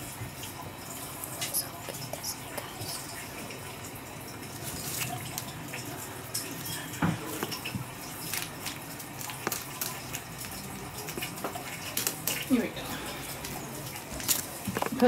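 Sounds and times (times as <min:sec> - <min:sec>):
wet squishing of meat: 0:04.4 - 0:15.0.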